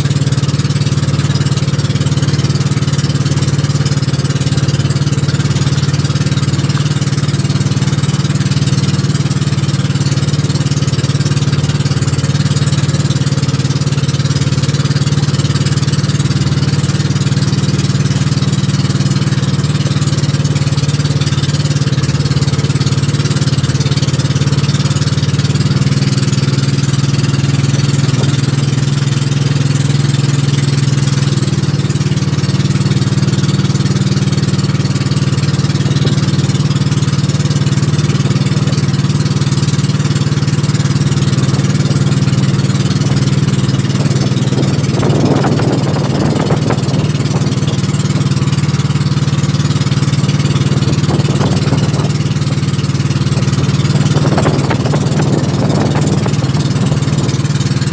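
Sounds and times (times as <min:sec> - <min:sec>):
boat engine running: 0:00.0 - 0:57.9
wind and water hiss: 0:04.8 - 0:57.9.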